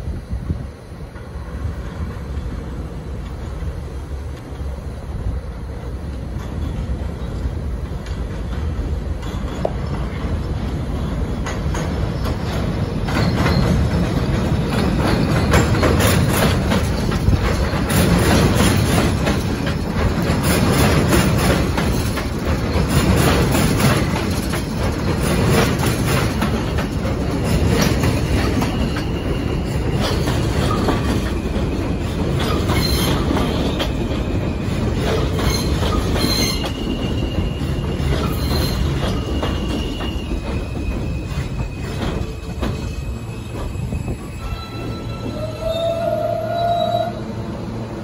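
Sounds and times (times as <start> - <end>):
subway train rumbling on track: 0.0 - 48.0
wheels clicking over rail joints: 6.1 - 45.6
high-pitched wheel squeal: 32.5 - 34.7, 35.3 - 47.4.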